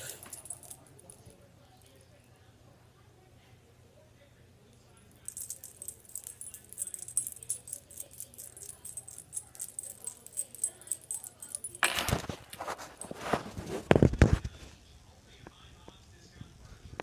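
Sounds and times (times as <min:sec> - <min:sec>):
jingling rattle of tiny clicks: 0:00.0 - 0:01.3, 0:05.1 - 0:12.6
rubbing handling noise: 0:05.2 - 0:14.3.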